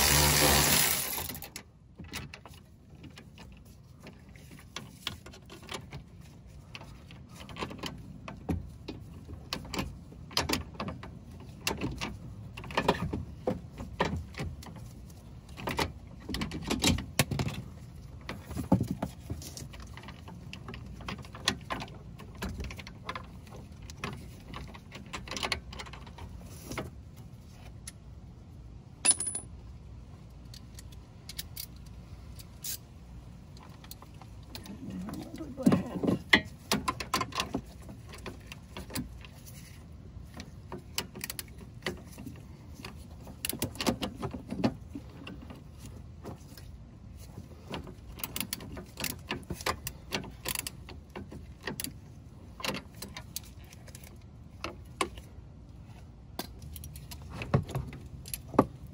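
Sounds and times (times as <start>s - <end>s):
power tool running: 0.0s - 1.4s.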